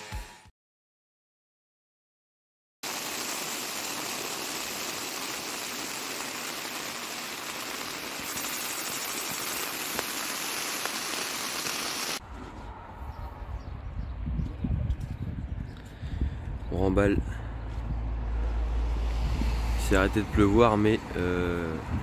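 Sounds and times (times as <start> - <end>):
rain on tent: 2.8 - 12.2
gusty wind on microphone: 12.2 - 20.5, 21.8 - 22.0.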